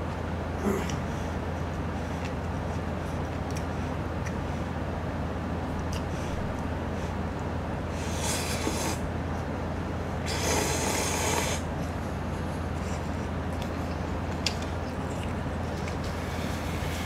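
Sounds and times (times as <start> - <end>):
person slurping noodles: 8.0 - 9.0, 10.3 - 11.6.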